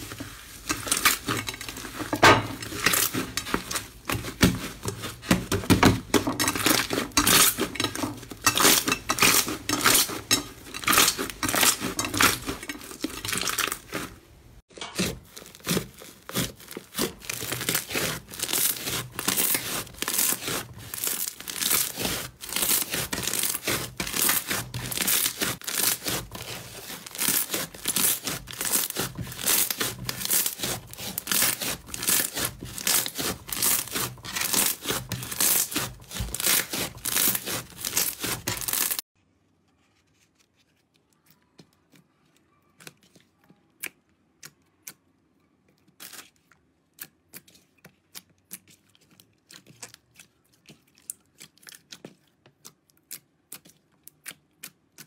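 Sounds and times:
hands squishing sticky slime: 0:15.0 - 0:39.0, 0:45.7 - 0:55.0.

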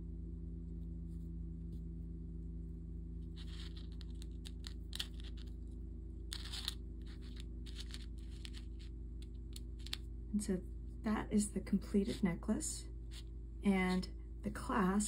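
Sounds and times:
steady low hum: 0:00.0 - 0:15.0
necklace rustling on cloth: 0:03.3 - 0:05.6, 0:06.3 - 0:10.1
glass beads clicking: 0:03.4 - 0:05.5, 0:06.3 - 0:08.9, 0:09.5 - 0:10.0.

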